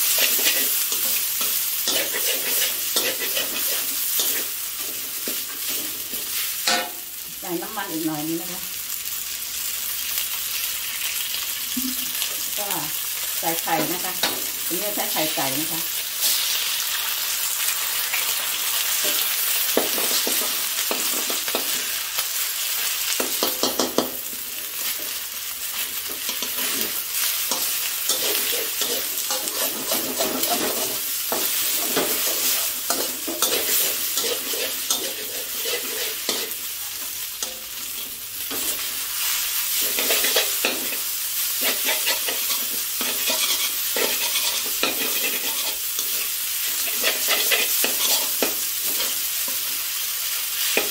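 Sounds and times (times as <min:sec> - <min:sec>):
spatula scraping and knocking pan: 0:00.0 - 0:07.0, 0:23.2 - 0:24.2, 0:26.1 - 0:36.6, 0:41.6 - 0:46.2
noodles sizzling in a wok: 0:00.0 - 0:50.9.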